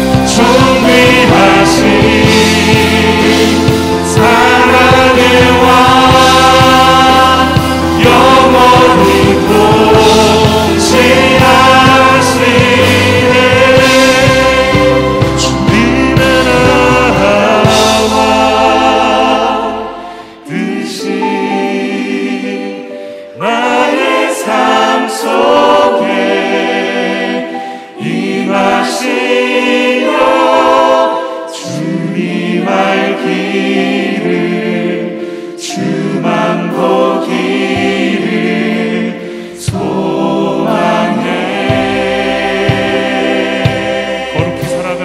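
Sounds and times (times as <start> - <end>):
deep bass: 0.0 - 20.4, 39.7 - 45.0
band accompaniment: 0.0 - 22.7, 23.4 - 45.0
choir singing worship song: 0.0 - 45.0.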